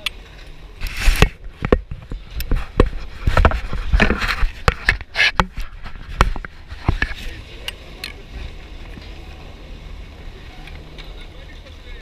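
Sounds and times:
gloves rubbing against camera: 0.8s - 9.2s
skis and poles scraping on snow: 2.2s - 7.6s.

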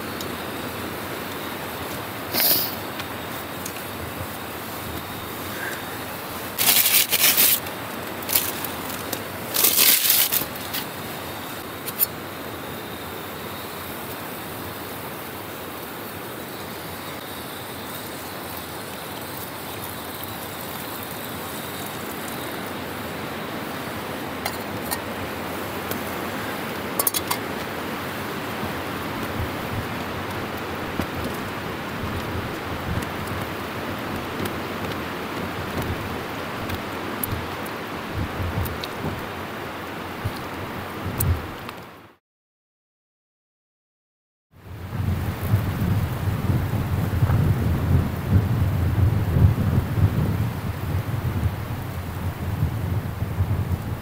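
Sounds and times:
wind noise: 0.0s - 12.1s, 19.3s - 41.8s, 44.6s - 54.0s
loud rustling: 4.1s - 11.1s.

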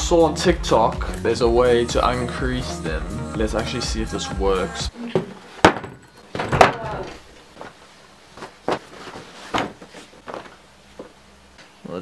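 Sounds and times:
scuffing on wooden desk: 8.4s - 11.2s.

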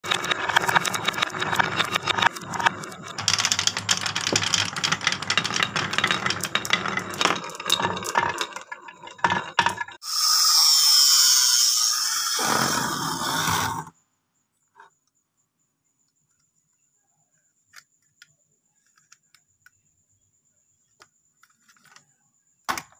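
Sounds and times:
marbles rattling on wooden run: 0.0s - 10.0s.

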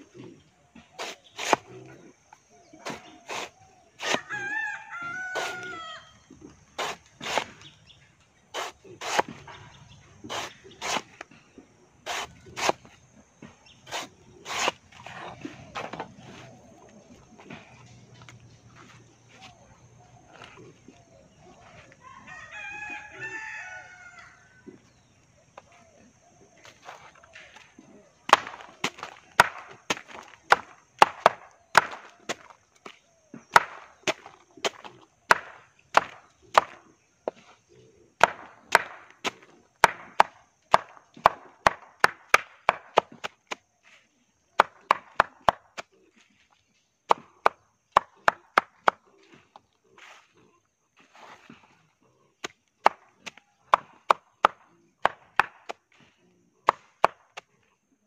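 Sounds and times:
machete chopping on board: 1.0s - 1.8s, 2.8s - 4.2s, 6.8s - 7.7s, 8.6s - 9.5s, 10.3s - 11.2s, 12.1s - 13.0s, 13.9s - 16.1s, 28.3s - 37.4s, 38.2s - 43.6s, 44.6s - 45.9s, 47.1s - 49.0s, 52.4s - 55.9s, 56.6s - 57.5s
rooster crowing: 4.2s - 6.2s, 22.0s - 24.6s.

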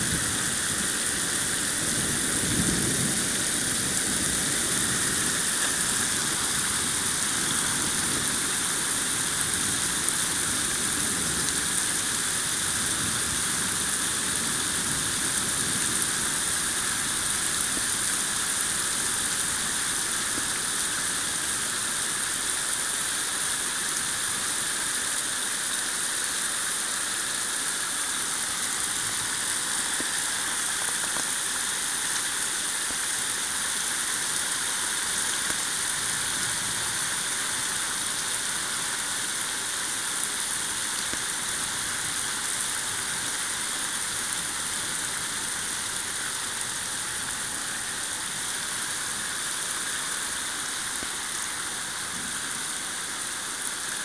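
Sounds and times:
heavy rain hiss: 0.0s - 54.0s.

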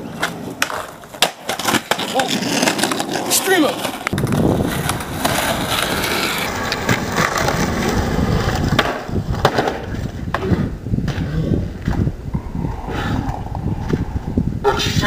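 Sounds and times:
skateboard wheels rolling on concrete: 0.0s - 15.0s
skateboard deck clacking on ground: 0.2s - 11.2s.

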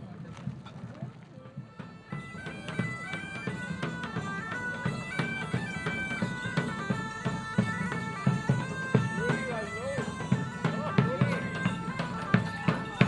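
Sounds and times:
steady drum beat: 0.0s - 13.0s
bagpipes playing: 1.1s - 13.0s.

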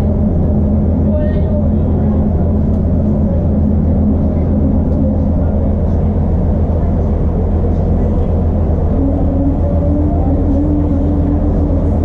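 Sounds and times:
diesel engine idling hum: 0.0s - 12.0s.

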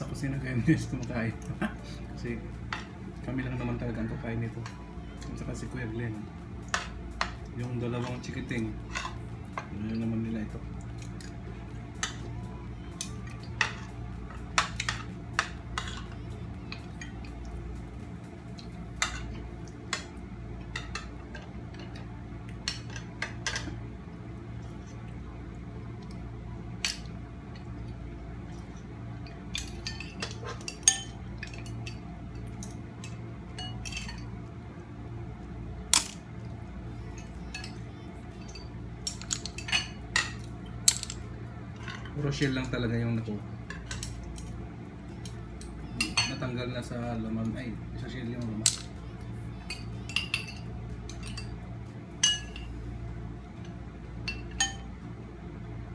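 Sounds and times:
steady low hum: 0.0s - 55.9s
spoons clinking on ceramic bowls: 54.3s - 54.9s.

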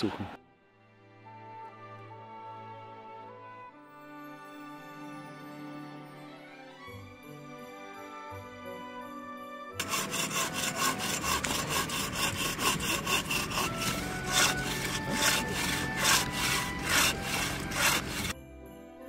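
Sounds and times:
hand saw cutting wood: 9.8s - 18.4s.

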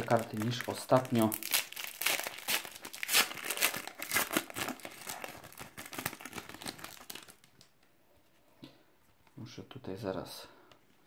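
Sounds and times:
foil wrapper crinkling and tearing: 0.0s - 7.7s.

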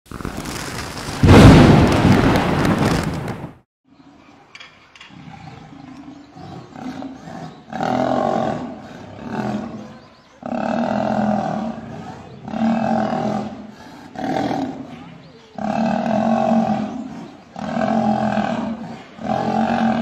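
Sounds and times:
lions snarling and growling: 5.1s - 20.0s.

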